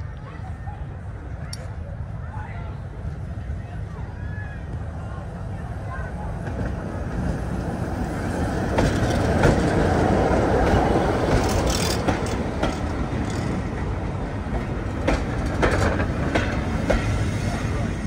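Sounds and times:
passenger train rumbling past: 0.0s - 18.0s
train wheels clicking over rail joints: 8.4s - 17.6s.

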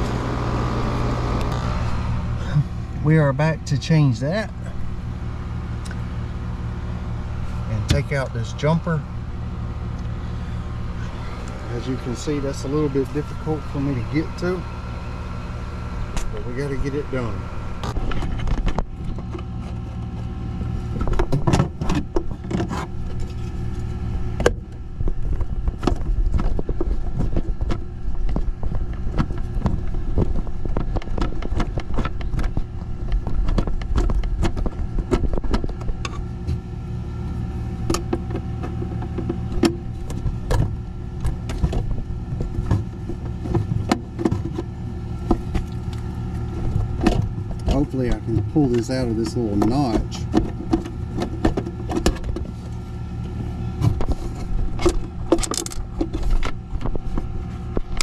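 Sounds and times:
heat pump humming: 0.0s - 58.0s
clicks and knocks of handling wires: 20.9s - 36.7s, 37.3s - 58.0s.

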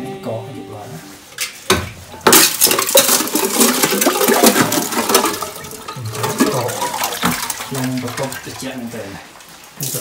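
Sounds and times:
water splashing: 2.2s - 10.0s
ice shards clinking: 2.3s - 8.2s
tin can knocking on plastic barrel: 2.8s - 7.6s.

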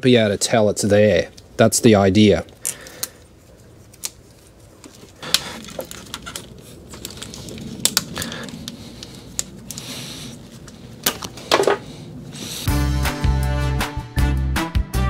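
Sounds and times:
electrical tape crackling: 0.2s - 12.7s
tape unrolling rasp: 2.5s - 12.7s.

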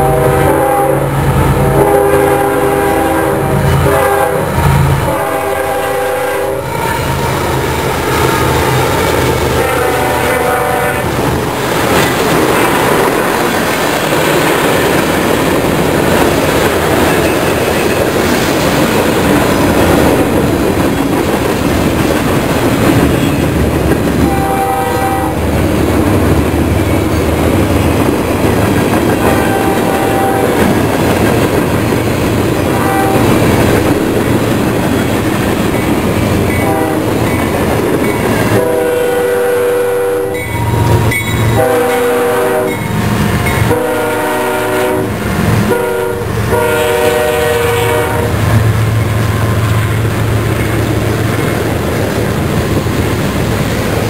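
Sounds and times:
train air horn blasts: 0.0s - 7.9s, 9.5s - 11.2s, 24.2s - 25.5s, 29.2s - 30.8s, 32.6s - 33.5s, 36.5s - 37.2s, 38.5s - 42.9s, 43.6s - 48.5s
diesel locomotive engine rumble: 0.0s - 54.0s
train wheel clatter and rumble: 2.7s - 54.0s.

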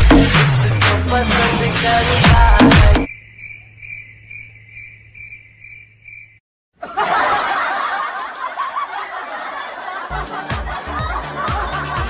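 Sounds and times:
people laughing loudly: 6.8s - 12.0s.

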